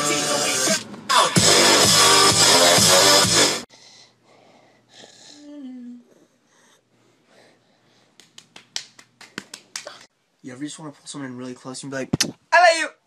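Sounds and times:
hand slapping bare skin: 0:08.2 - 0:10.1.

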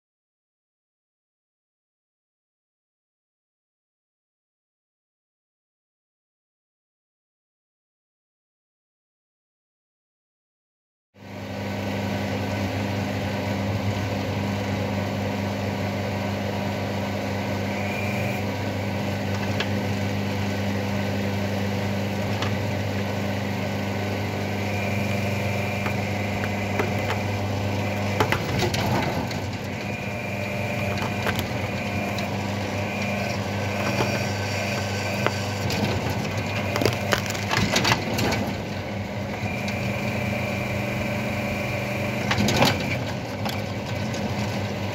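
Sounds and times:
hydraulic power unit humming: 0:11.2 - 0:44.9
roots cracking and snapping: 0:33.8 - 0:38.2.

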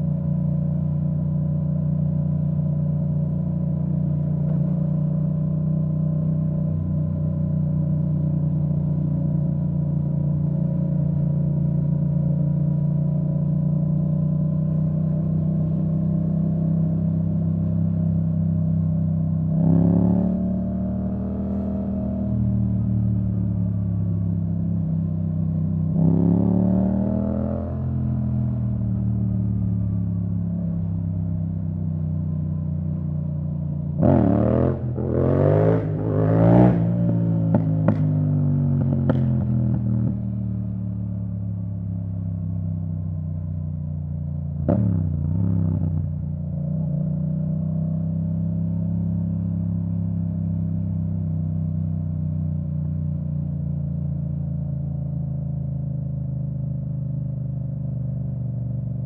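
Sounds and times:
motorcycle engine revving: 0:14.0 - 0:33.2, 0:33.9 - 0:43.1, 0:44.6 - 0:54.4.

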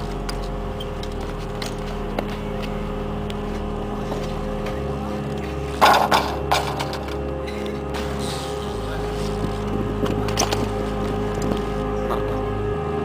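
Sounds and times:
steady low drone: 0:00.0 - 0:13.0
bike crashing onto concrete: 0:05.8 - 0:07.2.

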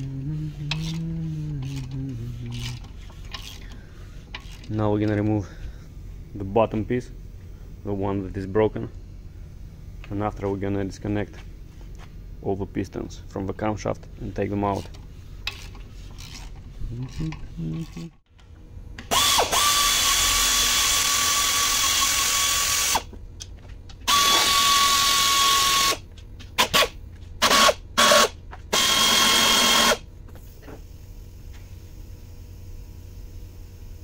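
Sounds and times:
air ratchet whining: 0:00.0 - 0:05.6, 0:14.7 - 0:18.2, 0:19.0 - 0:23.1, 0:24.0 - 0:26.0, 0:26.6 - 0:30.0.

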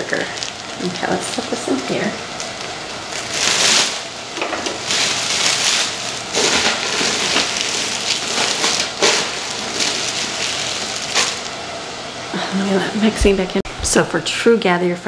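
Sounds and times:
plastic liner crinkling: 0:00.0 - 0:11.6.

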